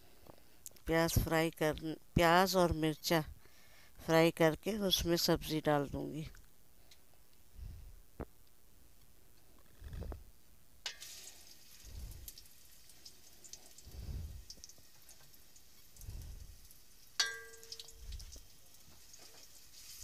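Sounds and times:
onions sizzling in oil: 0:10.8 - 0:20.0
metal spoon clinking on pot: 0:10.9 - 0:11.1, 0:17.2 - 0:18.0.

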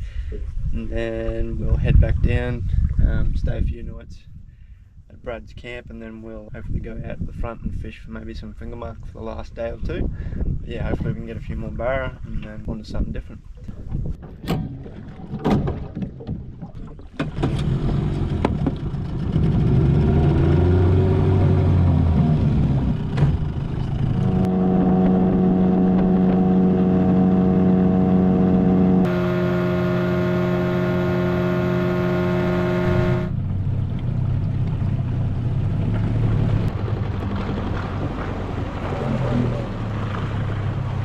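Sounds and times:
boat motor running: 0:16.0 - 0:41.0.

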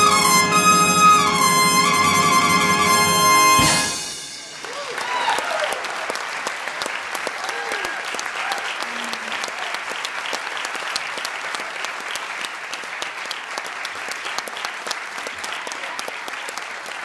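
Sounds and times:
audience applause: 0:03.7 - 0:17.0.

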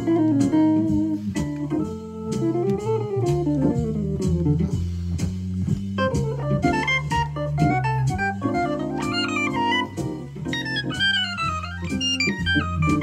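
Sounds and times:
drums: 0:00.0 - 0:13.0
organ: 0:00.0 - 0:13.0
walking bass: 0:00.0 - 0:13.0
electronic wind instrument solo: 0:06.0 - 0:13.0.

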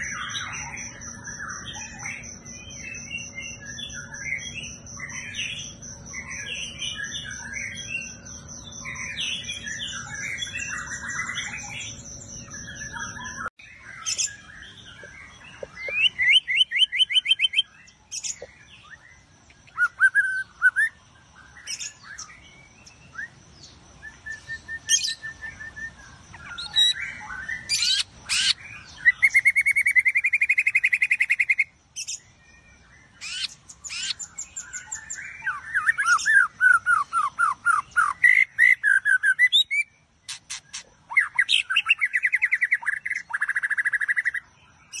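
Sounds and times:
bird singing whistled phrases: 0:15.8 - 0:21.0, 0:24.0 - 0:32.2, 0:33.2 - 0:45.0.

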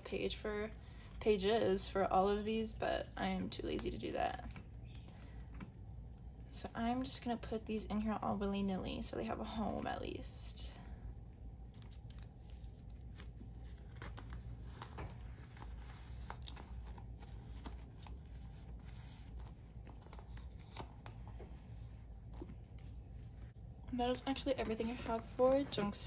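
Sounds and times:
plastic rustling and crinkling: 0:11.6 - 0:26.0.

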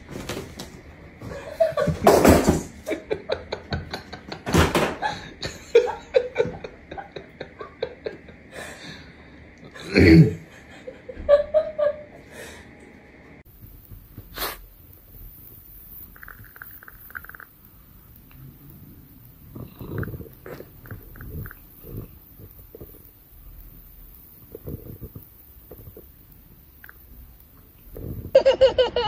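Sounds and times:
person laughing: 0:02.8 - 0:08.7, 0:09.8 - 0:12.2, 0:28.3 - 0:29.0.

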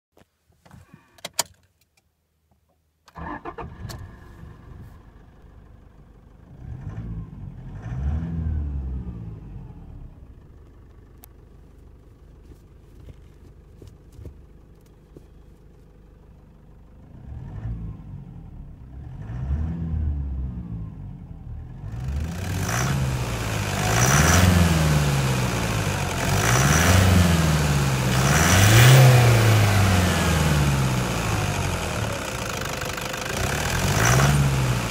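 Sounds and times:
diesel engine starting and idling: 0:03.1 - 0:34.9
engine revving: 0:06.5 - 0:10.2, 0:17.0 - 0:34.9.

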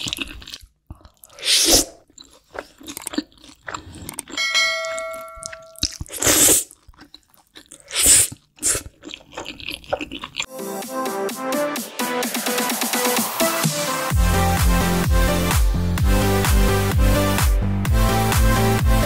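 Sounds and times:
chewing and mouth sounds: 0:00.0 - 0:10.5
loud noodle slurps: 0:01.3 - 0:02.1, 0:06.0 - 0:06.8, 0:07.8 - 0:10.2
bell-like chime effect: 0:04.4 - 0:05.8.

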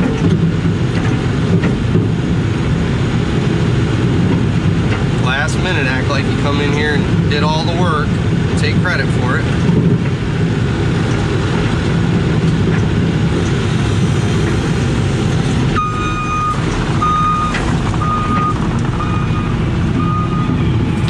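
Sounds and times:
diesel engine running: 0:00.0 - 0:21.0
reversing alarm beeping: 0:15.7 - 0:20.9.

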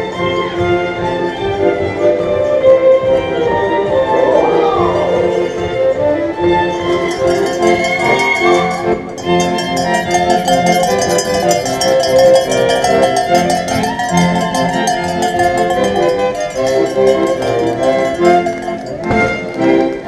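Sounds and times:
folk dance music with fiddle: 0:00.0 - 0:20.0.

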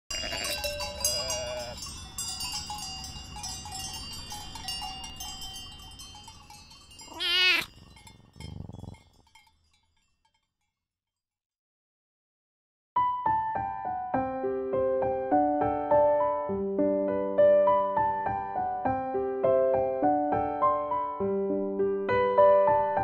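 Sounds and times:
sheep bleating: 0:00.1 - 0:01.8, 0:07.1 - 0:07.7
tinkling chime jingle: 0:00.1 - 0:10.7.

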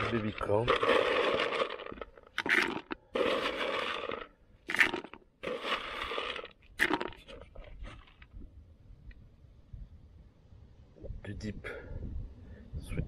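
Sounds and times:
pellets rattling into plastic bucket: 0:00.0 - 0:08.0.

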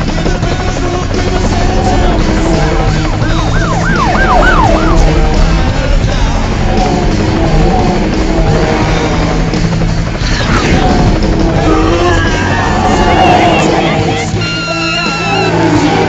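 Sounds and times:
loud music soundtrack: 0:00.0 - 0:16.0
low bass line: 0:00.0 - 0:16.0.

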